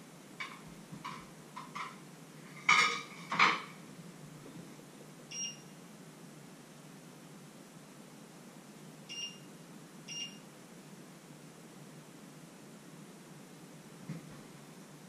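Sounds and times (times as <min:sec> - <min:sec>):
dishes clattering: 0:00.4 - 0:03.8.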